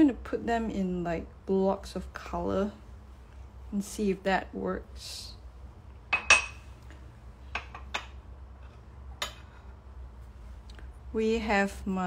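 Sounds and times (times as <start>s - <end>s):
kitchenware clinking: 6.1s - 6.8s, 7.5s - 9.8s.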